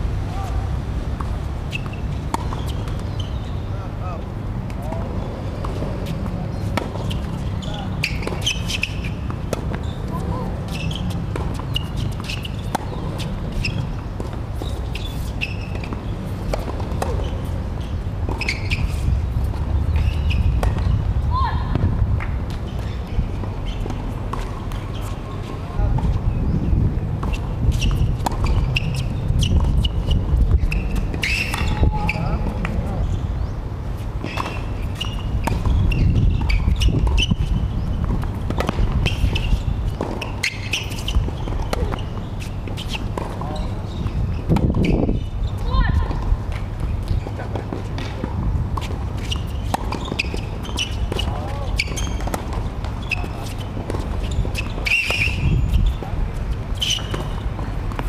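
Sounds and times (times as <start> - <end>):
sneakers squeaking on court: 0.1 - 58.0
tennis ball bouncing: 1.0 - 3.3, 4.6 - 21.1, 21.7 - 26.2, 27.2 - 32.9, 34.0 - 58.0
racket striking tennis ball: 38.0 - 42.0.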